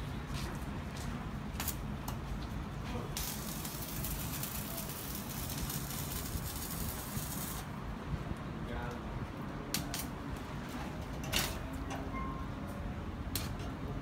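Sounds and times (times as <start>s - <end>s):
welding arc crackling: 1.5s - 2.0s, 3.0s - 7.8s.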